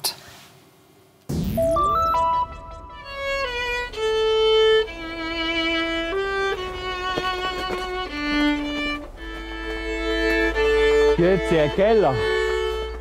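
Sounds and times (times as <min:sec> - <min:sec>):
solo violin slow melody: 0:02.7 - 0:13.0.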